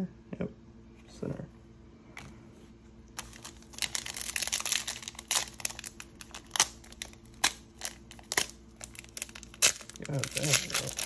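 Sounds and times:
foil wrapper crinkling: 0:03.2 - 0:11.0.

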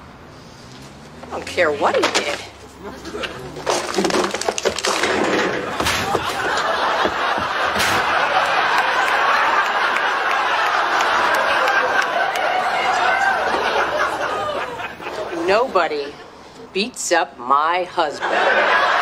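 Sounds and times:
studio audience laughing: 0:05.6 - 0:15.4, 0:18.1 - 0:19.0.

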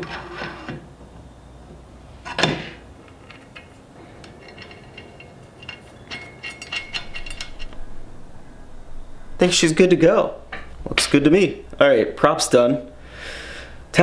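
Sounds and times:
small metallic clinks and taps: 0:04.4 - 0:07.8.

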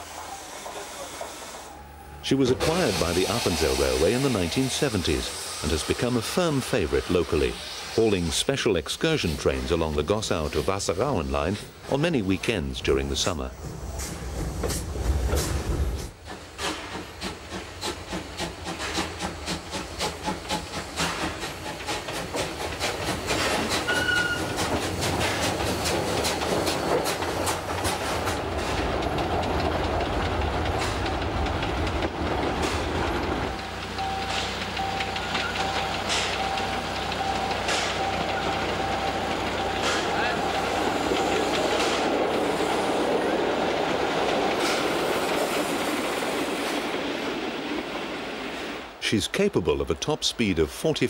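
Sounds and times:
steam hissing: 0:00.0 - 0:11.8, 0:12.9 - 0:49.1
steam locomotive chuffing: 0:00.0 - 0:51.0
rail clatter: 0:09.1 - 0:49.0
level crossing warning signal: 0:33.5 - 0:41.4.

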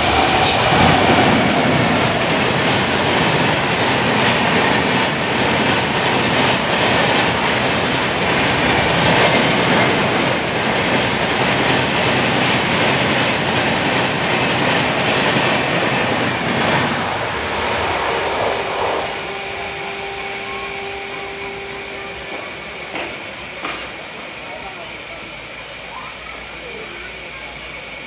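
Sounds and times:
train wheels rumbling on rail: 0:00.0 - 0:28.0
steady humming tone: 0:16.2 - 0:24.9.

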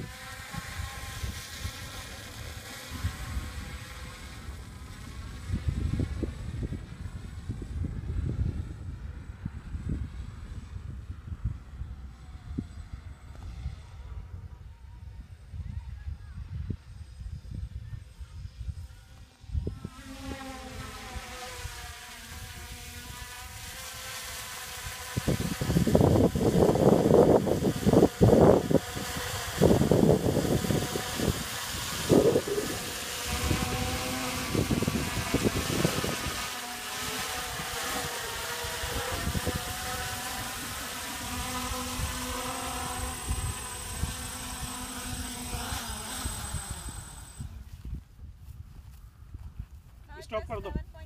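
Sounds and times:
drone propellers buzzing: 0:00.0 - 0:15.5, 0:16.6 - 0:47.8
wind buffeting microphone: 0:00.0 - 0:51.0.

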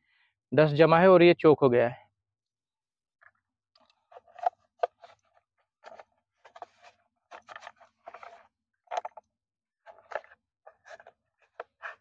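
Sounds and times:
hands scraping air filter: 0:09.9 - 0:12.0.

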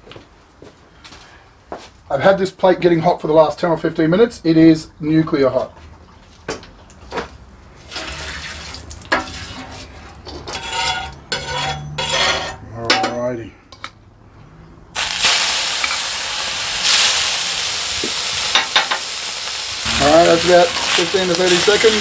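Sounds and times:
metal tongs clinking and scraping: 0:09.2 - 0:13.2
steaks sizzling on hotplate: 0:15.0 - 0:22.0.

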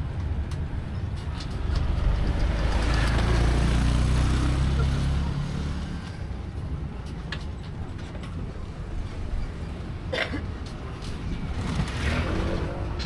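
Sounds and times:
road train rumbling: 0:00.0 - 0:13.0.

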